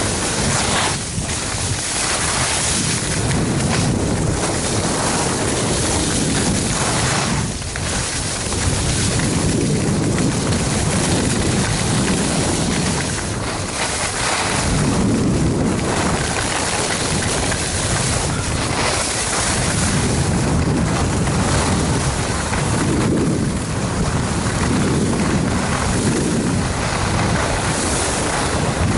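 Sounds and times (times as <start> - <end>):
skis hissing on snow: 0.0 - 9.8, 10.4 - 20.4
wind buffeting microphone: 0.0 - 28.9.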